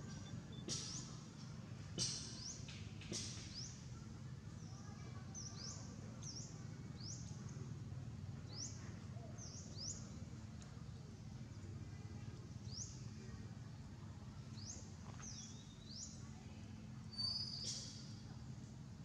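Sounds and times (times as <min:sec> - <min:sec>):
small bird chirping: 0:17.1 - 0:18.2.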